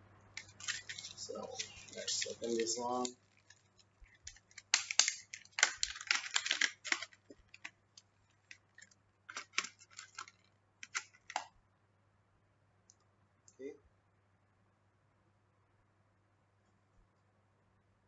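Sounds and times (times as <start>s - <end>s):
plastic packaging crackling: 0.3s - 11.5s.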